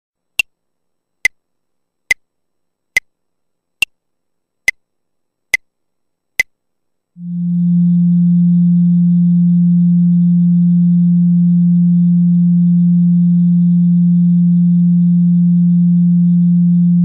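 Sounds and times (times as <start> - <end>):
cello drone: 7.2 - 17.0.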